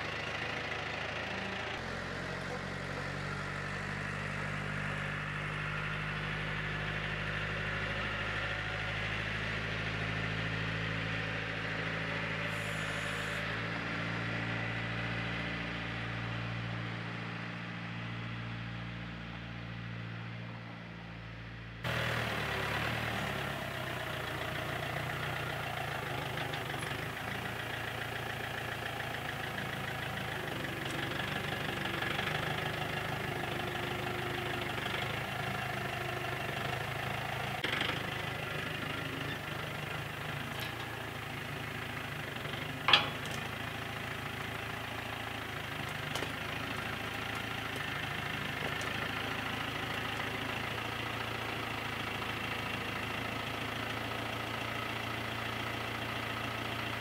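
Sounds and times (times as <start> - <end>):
tractor engine running: 0.0 - 57.0
loader clanking: 21.9 - 53.9.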